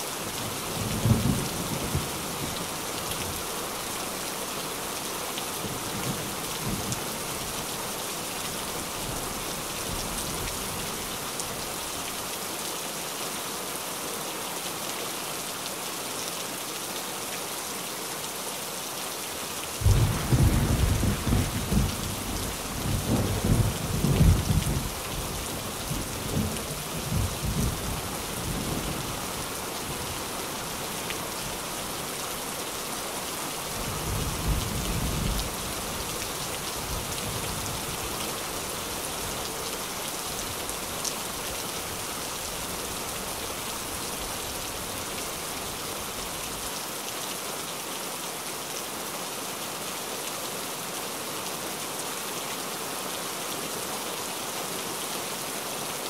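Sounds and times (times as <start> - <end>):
rain on a tin roof: 0.0 - 56.0
thunder rumbling: 19.8 - 24.9.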